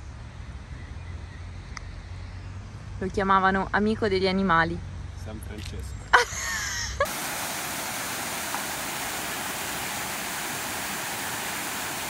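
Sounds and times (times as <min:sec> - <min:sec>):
fountain water rushing: 0:07.0 - 0:12.0.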